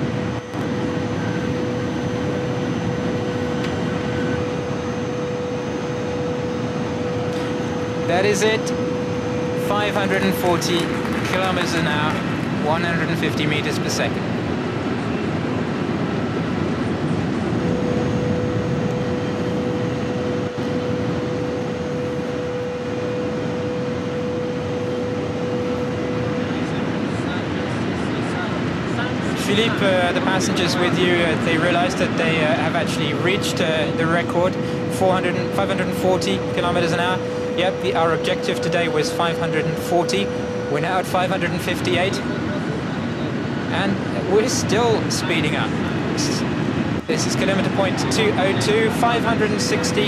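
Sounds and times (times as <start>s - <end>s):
high-speed train roaring: 0.0s - 50.0s
steady high whine: 0.0s - 50.0s
high-speed train rushing: 9.7s - 14.2s.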